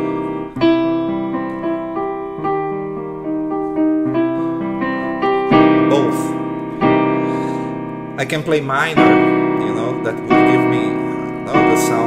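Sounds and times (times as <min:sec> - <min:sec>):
piano chords: 0:00.0 - 0:12.0.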